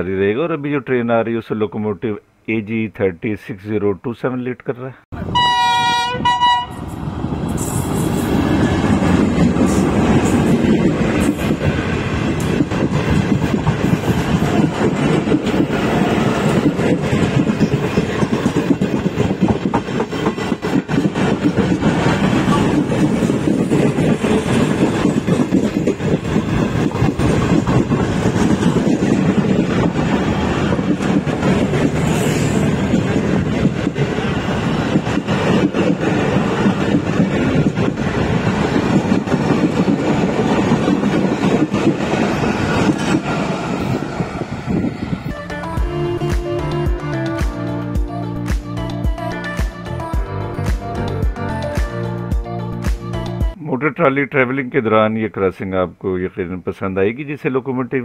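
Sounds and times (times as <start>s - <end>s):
locomotive horn: 5.2s - 6.9s
train wheels rumbling on rail: 5.2s - 49.8s
clickety-clack over rail joints: 7.3s - 45.2s.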